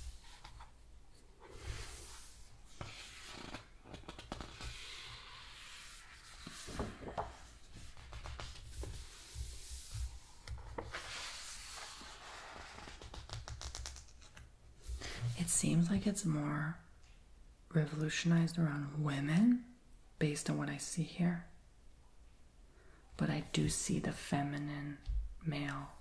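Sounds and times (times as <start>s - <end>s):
book pages turning: 1.4s - 14.5s
hands rubbing over pages: 1.4s - 15.6s.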